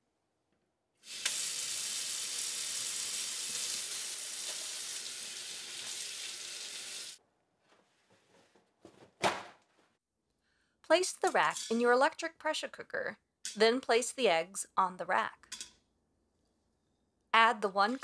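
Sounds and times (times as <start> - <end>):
faucet running into sink: 1.0 - 7.2.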